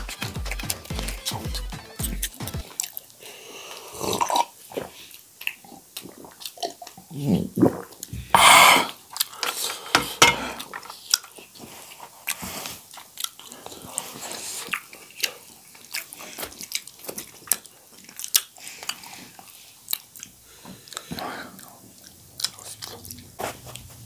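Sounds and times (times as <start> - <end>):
close-miked chewing: 0.0 - 24.0
wet mouth clicks and smacks: 0.1 - 3.2.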